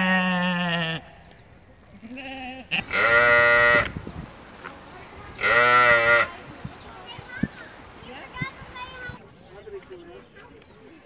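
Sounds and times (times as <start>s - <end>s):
sheep bleating: 2.0s - 3.9s, 5.4s - 6.3s.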